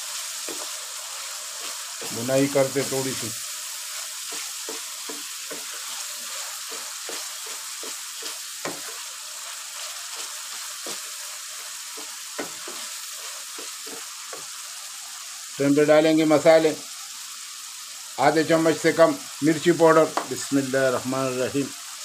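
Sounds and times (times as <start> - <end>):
masala sizzling in hot ghee: 0.0 - 22.0
wooden spatula scraping a pan: 0.1 - 14.6.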